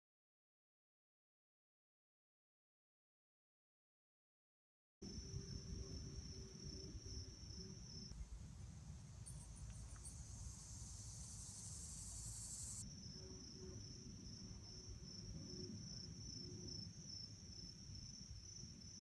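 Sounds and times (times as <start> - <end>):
insects chirring: 5.1 - 19.0.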